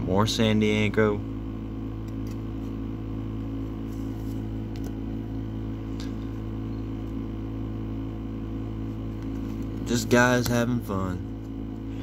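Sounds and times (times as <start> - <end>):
low room hum: 0.0 - 12.0
trading cards shuffled: 2.0 - 2.8, 3.8 - 5.0.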